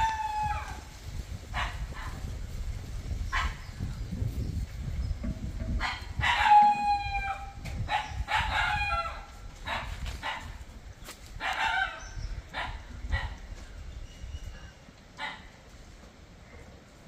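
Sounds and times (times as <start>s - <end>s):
dog barking: 7.9s - 8.8s, 9.7s - 10.6s, 11.4s - 12.0s, 12.6s - 13.4s, 15.2s - 15.5s.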